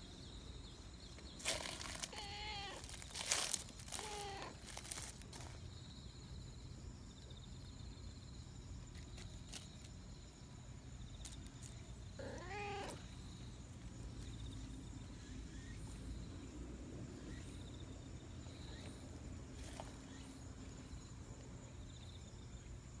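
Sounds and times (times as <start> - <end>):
cat meowing: 2.1 - 2.8, 4.0 - 4.6, 12.2 - 13.0.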